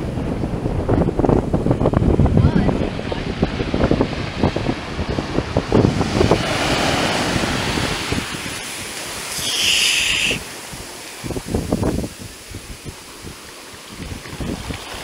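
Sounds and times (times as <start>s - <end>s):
surf washing up a beach: 0.0s - 15.0s
wind buffeting microphone: 0.0s - 15.0s
hiss of foam: 8.6s - 10.7s.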